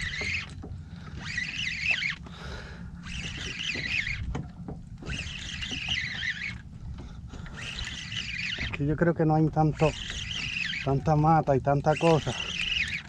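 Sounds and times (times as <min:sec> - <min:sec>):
fishing reel whirring and clicking: 0:00.0 - 0:13.0
low rumble of water and wind: 0:00.0 - 0:13.0.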